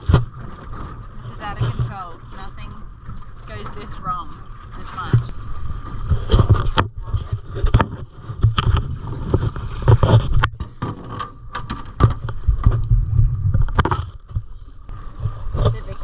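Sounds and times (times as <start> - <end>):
water lapping against boat: 0.0 - 16.0
wind rumbling on microphone: 0.0 - 16.0
metal anchor knocking and clanking: 10.4 - 12.8.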